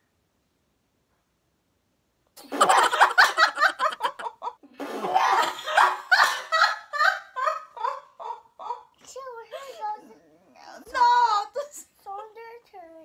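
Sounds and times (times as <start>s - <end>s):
woman laughing: 2.4s - 8.9s
girl laughing: 2.4s - 10.0s.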